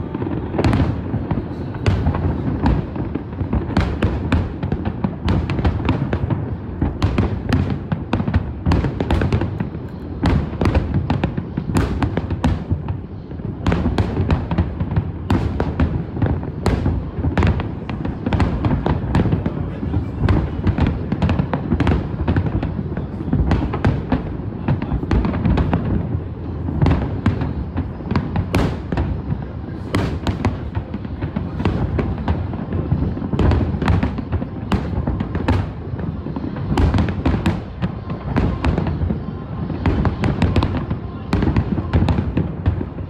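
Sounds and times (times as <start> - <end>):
low rumble of firework booms: 0.0 - 43.0.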